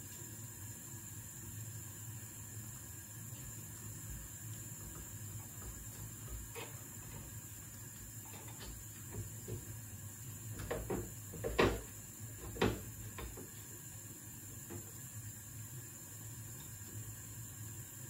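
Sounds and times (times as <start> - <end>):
kitchen knocks and clatters: 8.3 - 9.7, 10.6 - 13.5.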